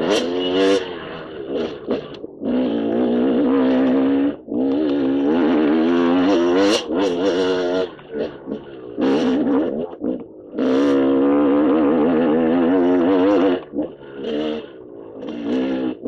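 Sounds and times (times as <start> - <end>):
dirt bike engine revving: 0.0 - 16.0.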